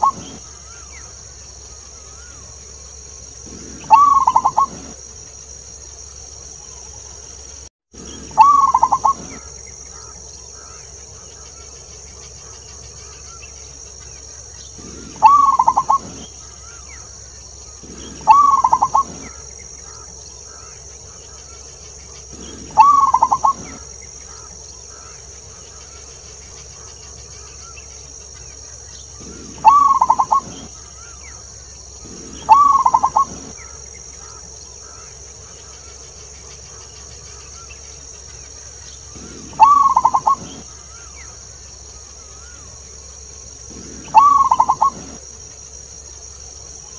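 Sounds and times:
dove cooing: 0.0s - 0.9s, 3.4s - 5.0s, 8.1s - 10.8s, 14.8s - 16.8s, 17.7s - 20.8s, 22.2s - 25.1s, 29.2s - 31.3s, 32.0s - 35.0s, 39.1s - 41.1s, 43.6s - 45.2s
steady high hiss: 0.0s - 46.9s.

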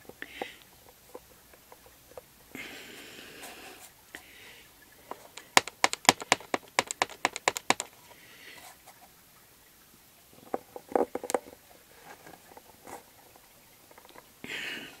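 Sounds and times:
sharp taps: 5.4s - 7.9s
stamp knocking on block: 5.4s - 7.9s.

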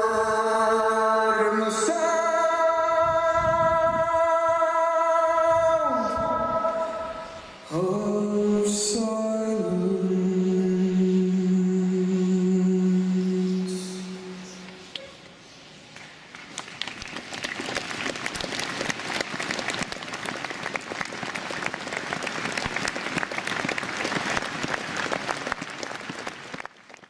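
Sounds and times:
crowd applauding: 16.3s - 27.0s.

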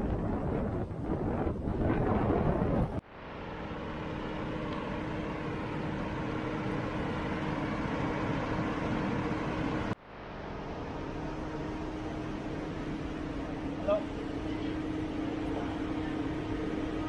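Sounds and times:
idling car and bus engines: 3.1s - 17.0s.

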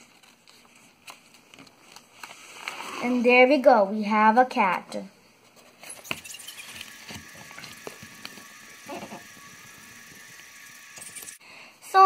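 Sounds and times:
paper clicks and crinkles: 0.0s - 2.4s
paper rustling: 0.0s - 2.9s.

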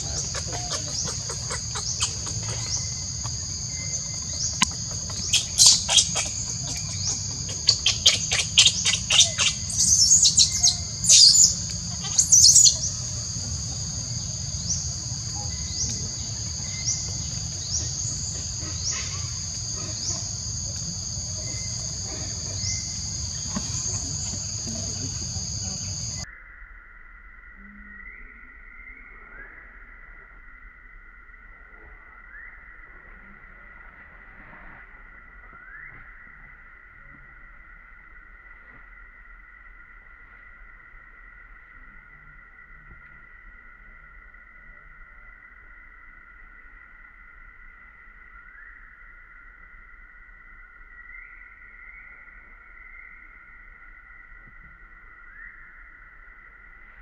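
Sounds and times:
low insect buzz: 0.0s - 26.4s
shrill insect chirping: 0.0s - 26.6s
high-pitched insect drone: 0.0s - 29.2s.

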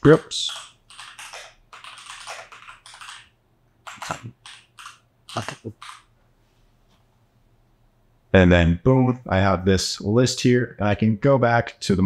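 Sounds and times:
typing on computer keyboard: 0.0s - 6.1s.

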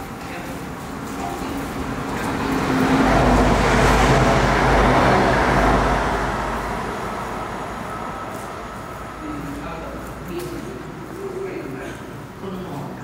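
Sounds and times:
vehicle passing rumble: 0.8s - 11.1s.

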